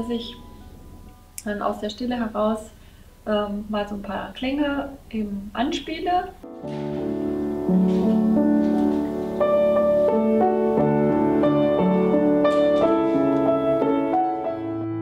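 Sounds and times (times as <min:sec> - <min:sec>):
upright piano playing: 0:06.4 - 0:15.0.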